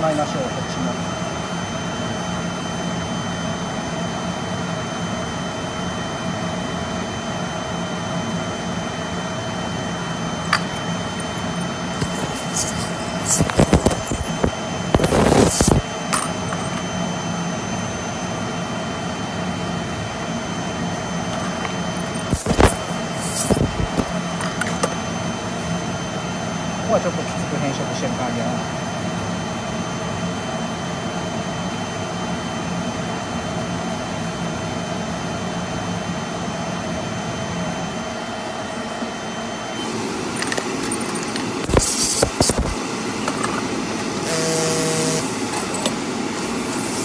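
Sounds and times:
machine hum: 0:08.2 - 0:26.2, 0:38.6 - 0:47.0.

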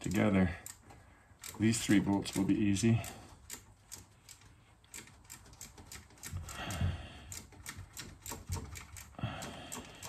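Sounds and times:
socket ratchet clicking: 0:03.4 - 0:06.6, 0:07.3 - 0:10.0.

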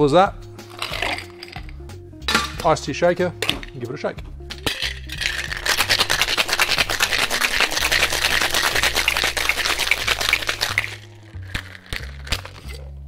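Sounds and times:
ice rattling in cocktail shaker: 0:00.6 - 0:02.7, 0:04.5 - 0:12.9.

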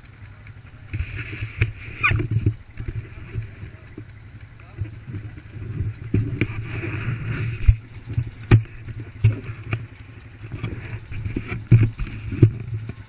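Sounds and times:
atv engine running: 0:00.0 - 0:13.0
camera handling knocks and rubbing: 0:05.0 - 0:13.0.

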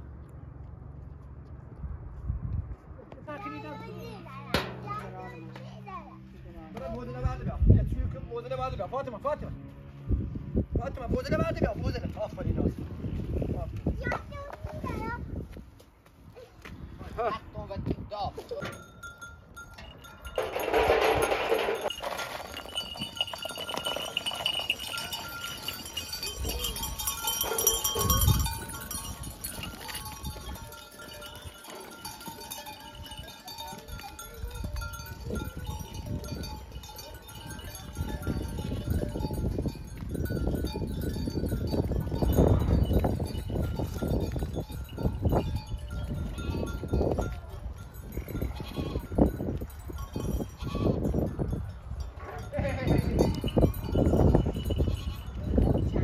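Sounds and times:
goats and sheep bleating: 0:48.3 - 0:49.2, 0:50.4 - 0:51.1, 0:52.2 - 0:53.6, 0:54.8 - 0:55.4.

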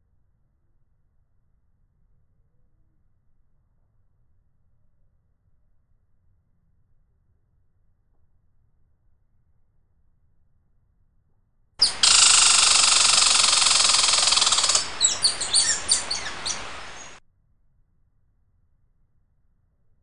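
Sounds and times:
birds chirping: 0:11.8 - 0:17.2.

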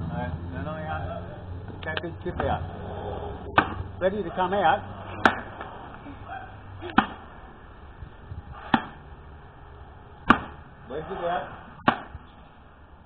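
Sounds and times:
axe chopping wooden log: 0:03.6 - 0:03.8, 0:05.2 - 0:05.6, 0:06.9 - 0:07.3, 0:08.7 - 0:09.0, 0:10.2 - 0:10.6, 0:11.8 - 0:12.2.

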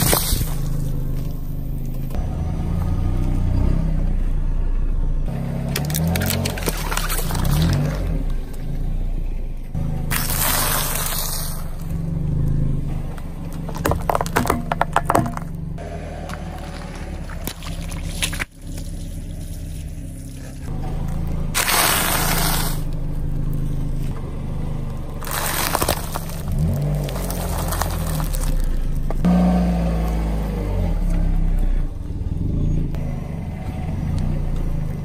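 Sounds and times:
tyre noise on asphalt: 0:00.0 - 0:35.0
tyre crushing objects crackling: 0:13.4 - 0:15.6, 0:21.5 - 0:24.2, 0:25.1 - 0:29.3.

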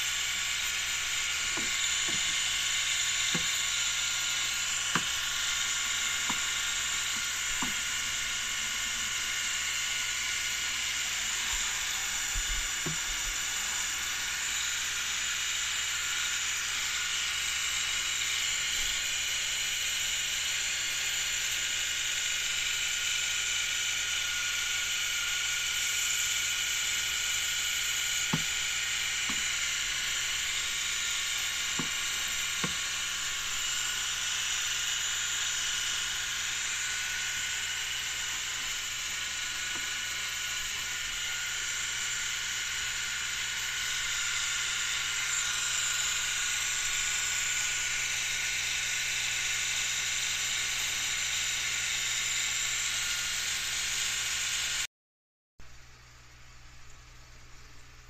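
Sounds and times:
misting nozzle hissing: 0:00.0 - 0:15.4, 0:26.3 - 0:48.1.

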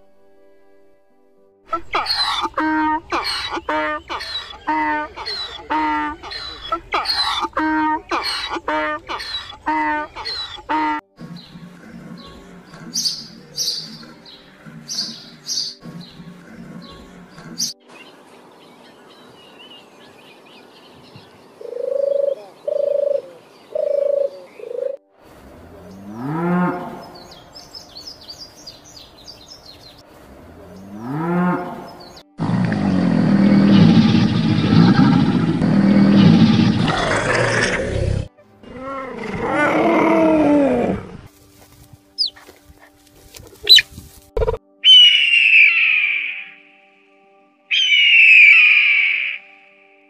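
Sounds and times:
rising pitched animal calls: 0:43.6 - 0:46.6, 0:47.7 - 0:49.6
loud harsh animal call: 0:44.8 - 0:46.6, 0:47.7 - 0:49.6.

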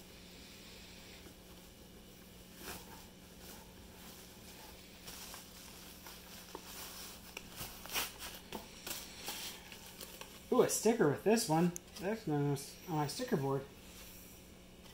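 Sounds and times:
cloth bags rustling: 0:01.3 - 0:12.4.

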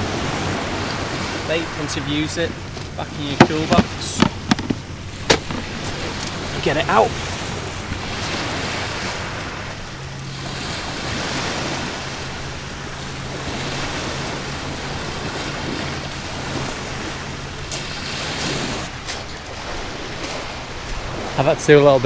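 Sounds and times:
waves breaking on shingle: 0:00.0 - 0:21.4
wind on microphone: 0:00.0 - 0:21.6
footsteps on pebbles: 0:02.7 - 0:06.4.

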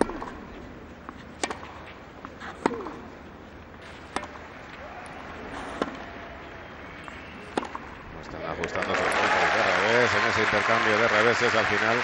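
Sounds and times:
tennis ball struck by rackets: 0:00.0 - 0:00.4, 0:01.3 - 0:01.8, 0:02.5 - 0:03.1, 0:03.8 - 0:04.4, 0:05.7 - 0:06.1, 0:07.5 - 0:07.9.

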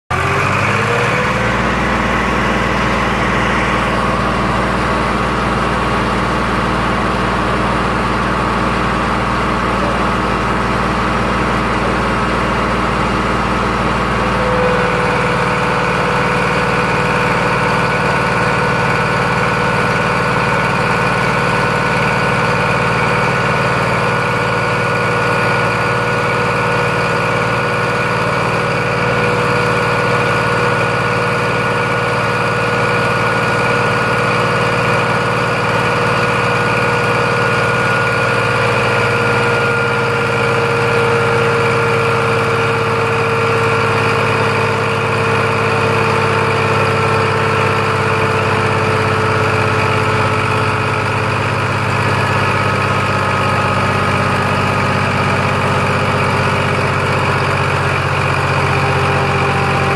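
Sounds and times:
tractor diesel engine running: 0:00.0 - 0:59.9
steady whine: 0:00.4 - 0:21.2.

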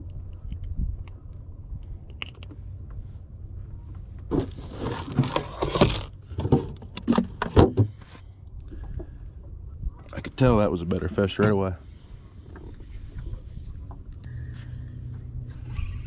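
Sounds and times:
steady low rumble: 0:00.0 - 0:04.8, 0:08.0 - 0:16.0.

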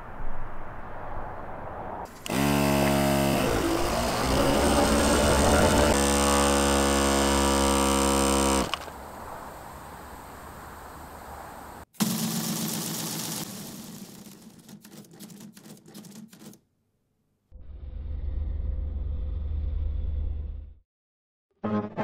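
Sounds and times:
tire compressor buzzing: 0:02.1 - 0:09.0.

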